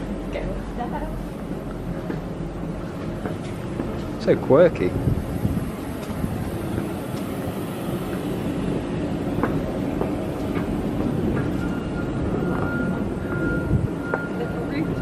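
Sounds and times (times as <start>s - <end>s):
low rumbling background noise: 0.0s - 15.0s
footsteps climbing stairs: 1.9s - 4.2s, 9.1s - 14.3s.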